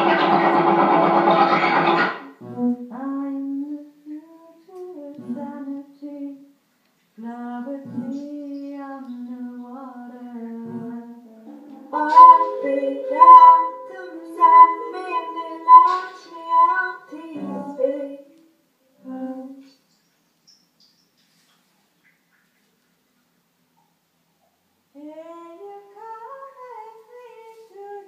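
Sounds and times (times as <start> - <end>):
voice-like electronic tones: 11.5 - 16.7
layered electronic notes: 11.5 - 18.0.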